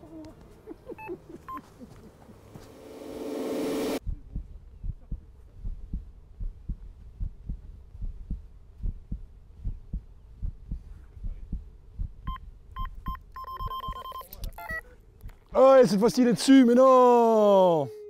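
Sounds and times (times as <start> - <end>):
low dull pulses: 2.7 - 12.3.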